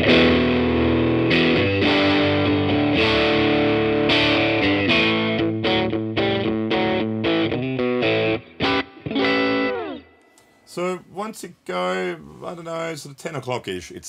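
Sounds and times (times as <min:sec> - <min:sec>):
electric guitar chords: 0:00.0 - 0:10.5.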